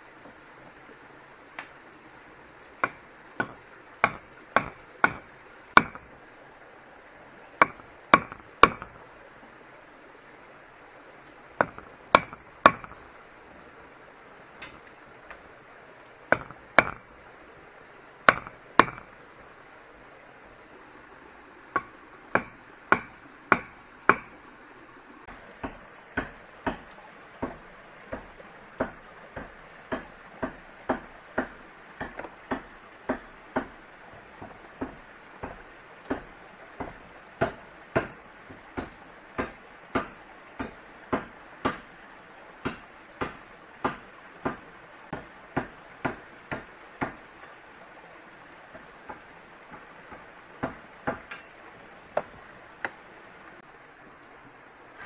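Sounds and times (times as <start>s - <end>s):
hand tool striking wood: 2.8s - 6.1s, 7.6s - 9.0s, 11.6s - 13.0s, 16.0s - 17.1s, 18.2s - 19.1s, 21.8s - 24.4s, 25.6s - 42.0s, 42.6s - 47.6s, 48.7s - 53.0s.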